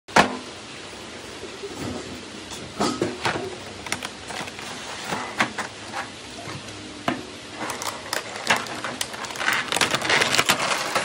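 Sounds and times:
plastic tray crinkles and taps: 7.7s - 11.0s.

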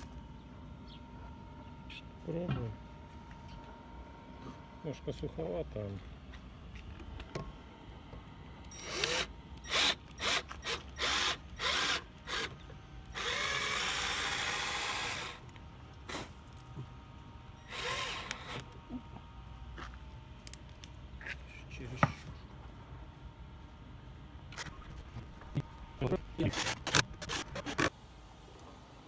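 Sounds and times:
cordless drill driving screws: 8.7s - 12.5s, 13.1s - 15.4s, 17.6s - 18.6s.

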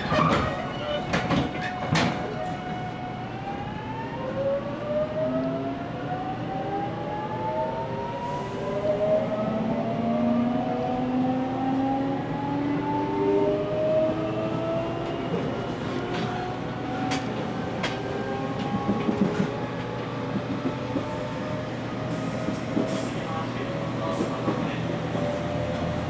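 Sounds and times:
train running rumble: 15.0s - 26.0s.

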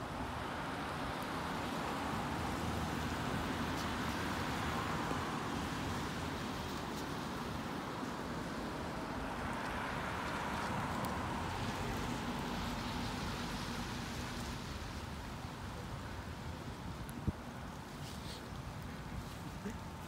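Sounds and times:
cars driving along street: 0.0s - 20.0s
gusty wind: 0.0s - 20.0s.

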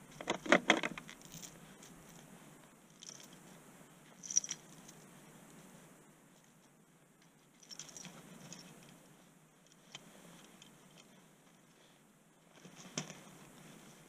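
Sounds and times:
faint scrapes and clicks: 9.6s - 14.0s.

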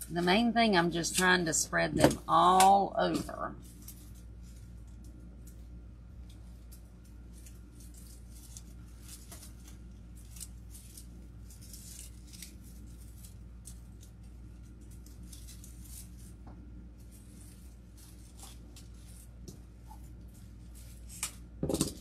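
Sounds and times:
artificial flowers rustling: 0.0s - 22.0s.

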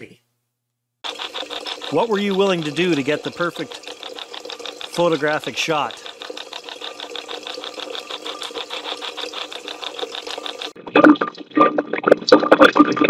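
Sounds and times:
choppy pulsing static: 1.0s - 11.3s
garbled filtered voice fragments: 1.0s - 13.0s.

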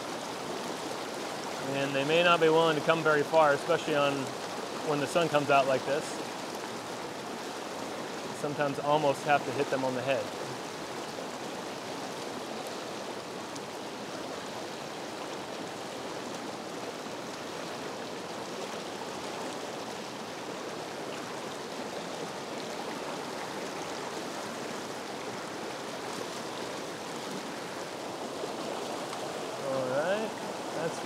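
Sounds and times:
river rushing over rocks: 0.0s - 31.0s.

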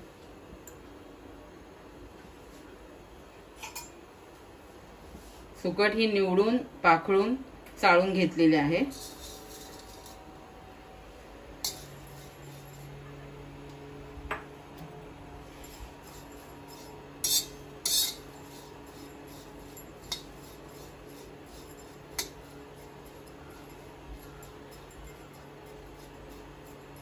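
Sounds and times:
spatula scraping metal pan: 16.0s - 22.4s.

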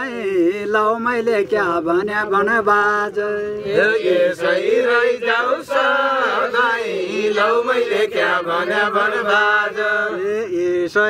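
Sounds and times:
group chant-singing folk song: 2.2s - 10.8s.

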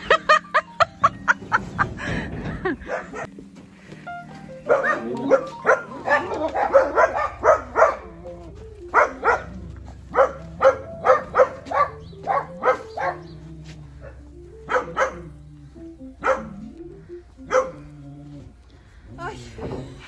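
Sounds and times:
background music: 0.0s - 20.0s
dog barking: 2.8s - 3.3s, 4.7s - 8.2s, 8.9s - 13.3s, 14.7s - 15.4s, 16.2s - 16.7s, 17.5s - 17.8s.

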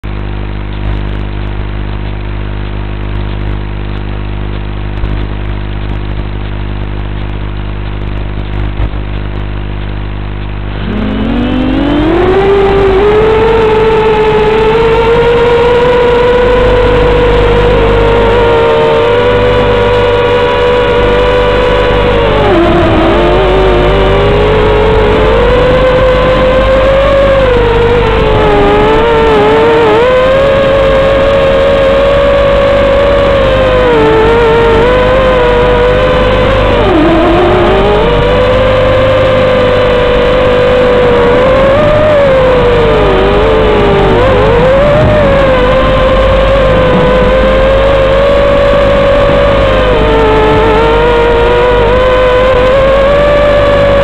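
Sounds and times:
low hum: 0.0s - 54.0s
quadcopter propeller whine: 0.0s - 54.0s.

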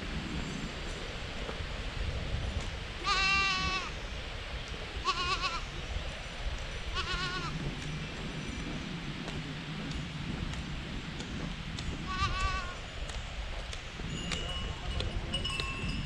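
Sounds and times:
goat bleating: 3.0s - 3.9s, 5.0s - 5.7s, 7.0s - 7.6s, 12.0s - 12.8s.

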